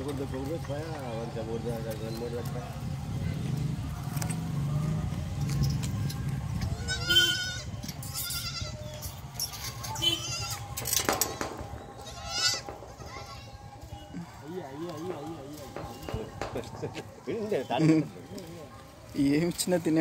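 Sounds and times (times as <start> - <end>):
kid goats bleating: 6.7 - 9.0, 9.7 - 10.7, 12.0 - 13.6.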